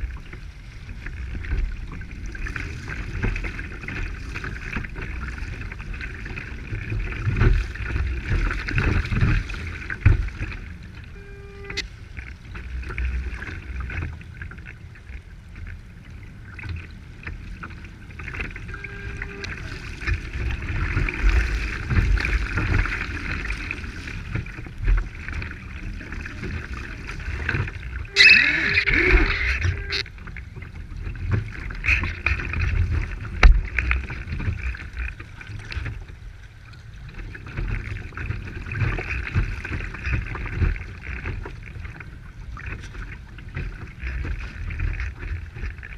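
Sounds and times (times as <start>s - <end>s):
water slapping against a hull: 0.0s - 45.9s
water splash: 16.4s - 30.3s.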